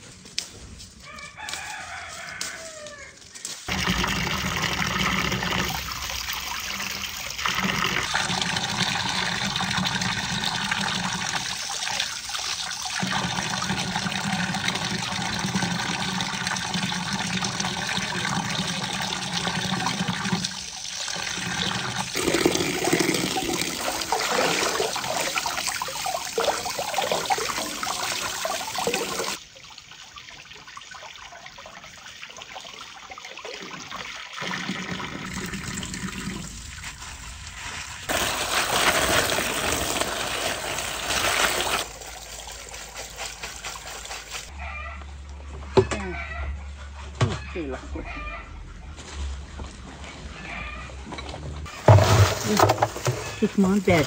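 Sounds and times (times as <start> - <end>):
rooster crowing: 1.0 - 3.2.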